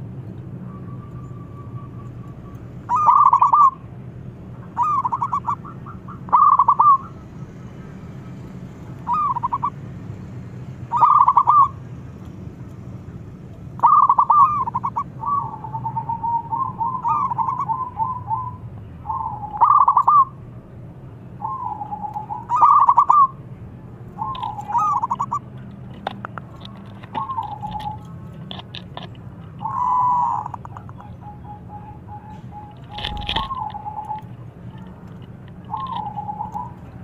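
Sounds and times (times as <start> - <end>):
dove cooing: 0.8 - 3.9, 4.6 - 7.3, 9.0 - 9.8, 10.9 - 11.8, 13.8 - 20.4, 21.4 - 23.4, 24.2 - 37.0.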